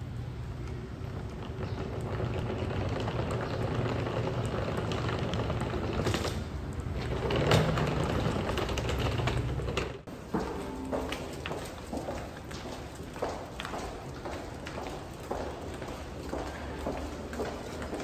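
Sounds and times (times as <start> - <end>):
gas fire rumbling and crackling: 0.0 - 10.1.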